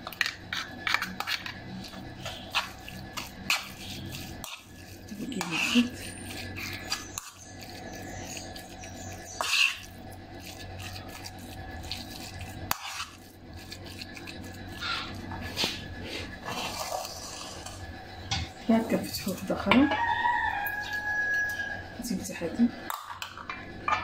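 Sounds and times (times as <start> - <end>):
metal spoon scraping a wok: 0.0 - 17.8.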